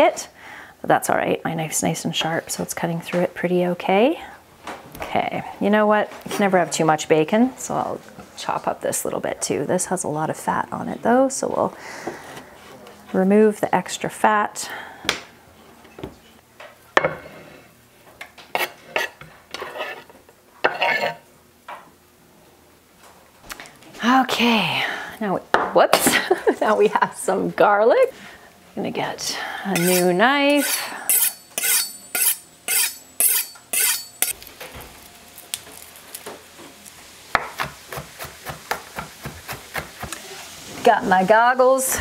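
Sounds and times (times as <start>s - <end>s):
knife scraping on wooden board: 18.5s - 21.2s, 29.8s - 34.3s
garlic cloves being peeled: 29.8s - 34.5s.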